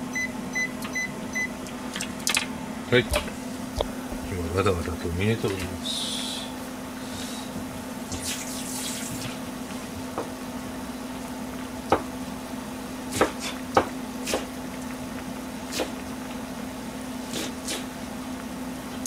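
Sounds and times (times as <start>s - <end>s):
steady low hum: 0.0s - 19.0s
broth bubbling and popping: 14.5s - 16.6s.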